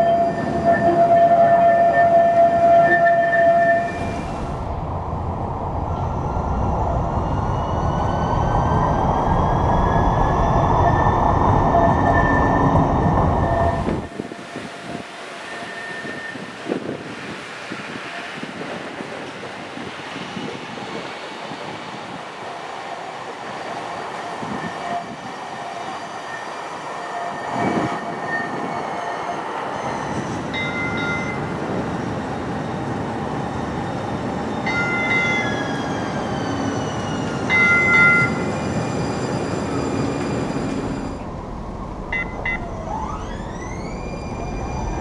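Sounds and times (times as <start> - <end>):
streetcar horn: 0.0 - 4.0
streetcar motor whine and rumble: 0.0 - 45.0.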